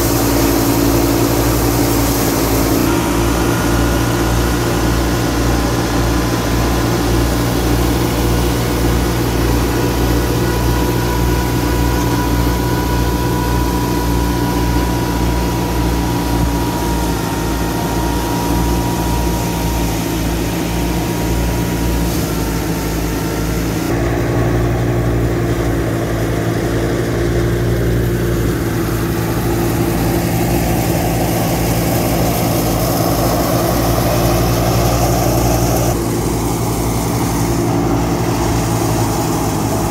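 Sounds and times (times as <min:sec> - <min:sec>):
thresher drum and belts running: 0:00.0 - 0:39.9
tractor diesel engine under load: 0:00.0 - 0:39.9.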